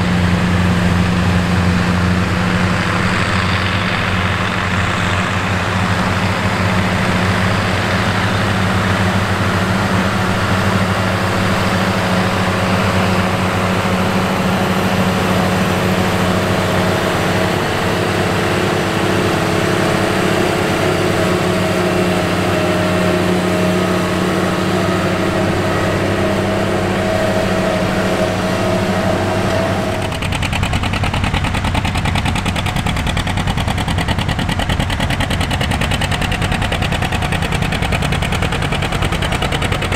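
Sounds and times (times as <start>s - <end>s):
tractor diesel engine under load: 0.0s - 39.9s
tractor diesel with fast exhaust beat: 0.0s - 39.9s.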